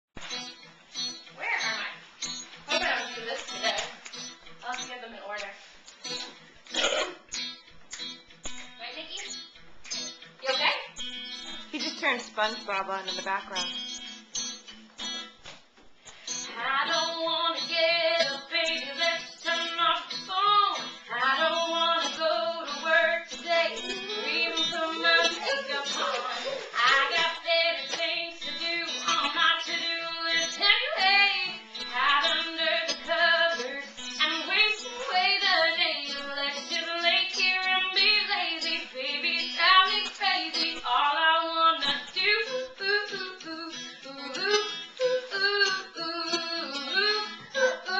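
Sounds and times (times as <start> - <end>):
girl singing: 16.3 - 47.9.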